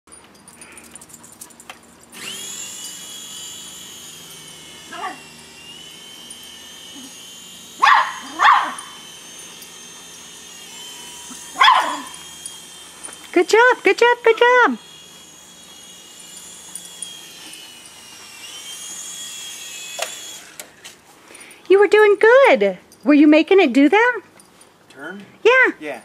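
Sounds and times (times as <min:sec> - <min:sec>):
toy helicopter motor whine: 0:00.5 - 0:22.6
small dog barking: 0:07.8 - 0:08.9, 0:11.6 - 0:12.1.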